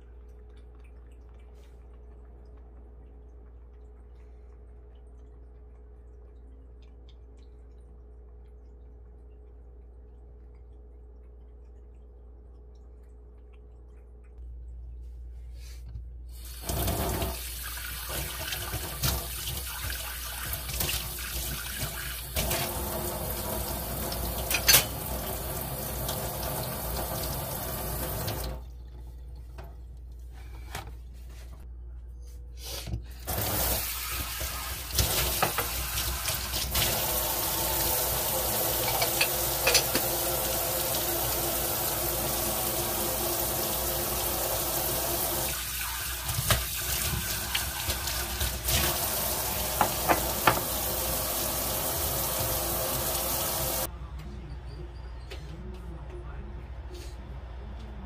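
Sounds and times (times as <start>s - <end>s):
faucet running into steel sink: 16.4s - 28.8s, 33.2s - 53.9s
ceramic bowl clinking: 38.8s - 40.2s.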